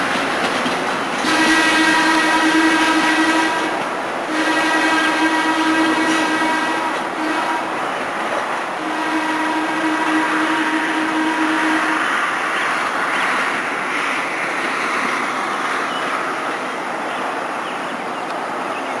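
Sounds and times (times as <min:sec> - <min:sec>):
wheels rolling on rails: 0:00.0 - 0:02.7
railcar air horn blast: 0:01.2 - 0:07.8, 0:08.8 - 0:12.4.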